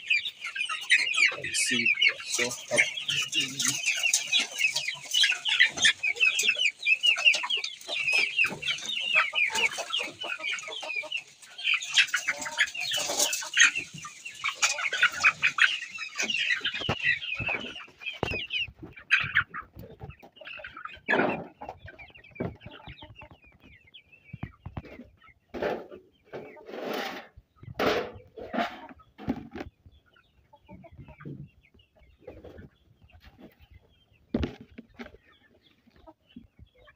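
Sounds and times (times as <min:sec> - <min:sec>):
chicks chirping and peeping: 0:00.0 - 0:36.9.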